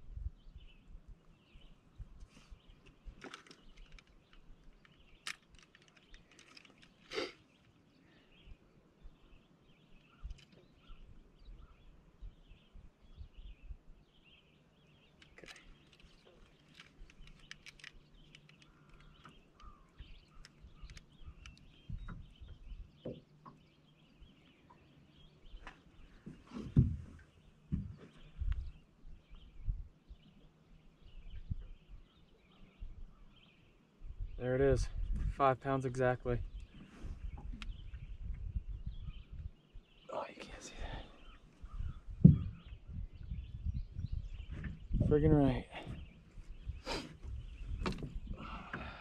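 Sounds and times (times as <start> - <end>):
faint bird chirps: 0.2 - 35.3, 36.4 - 49.0
handling clicks and knocks: 3.2 - 7.1, 15.2 - 19.7.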